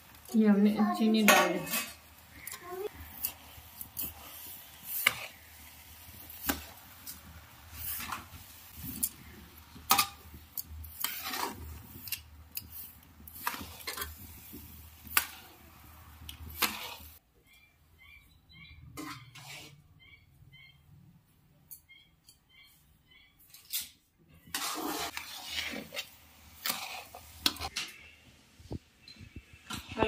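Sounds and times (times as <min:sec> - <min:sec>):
metal spatula scraping metal pan: 0:01.2 - 0:05.4, 0:10.9 - 0:14.2, 0:19.0 - 0:19.8, 0:24.4 - 0:28.2.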